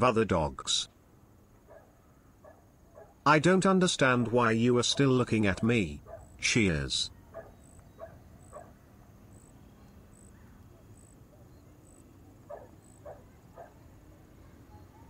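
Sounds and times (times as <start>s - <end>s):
distant animal calls: 1.6s - 3.2s, 4.9s - 6.4s, 7.1s - 15.0s.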